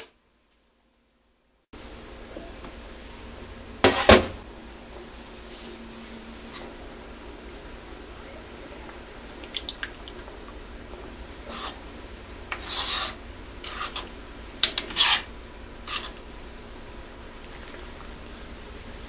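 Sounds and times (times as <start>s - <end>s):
spoon scraping earthenware pot: 11.4s - 11.8s, 12.5s - 16.2s.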